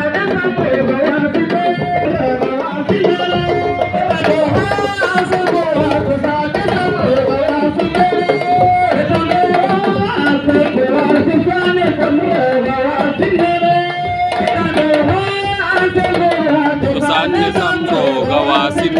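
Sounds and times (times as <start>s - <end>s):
drums beating quickly: 0.0s - 18.9s
person singing long notes: 16.8s - 18.9s.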